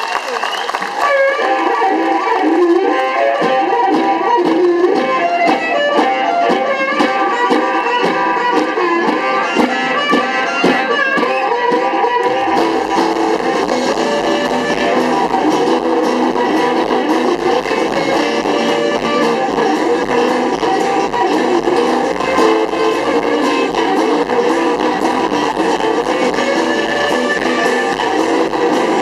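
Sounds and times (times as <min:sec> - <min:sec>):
drums: 0:00.0 - 0:29.0
acoustic guitar: 0:01.0 - 0:29.0
amplified harmonica: 0:01.0 - 0:29.0
violin: 0:01.0 - 0:29.0
low bass: 0:12.2 - 0:29.0.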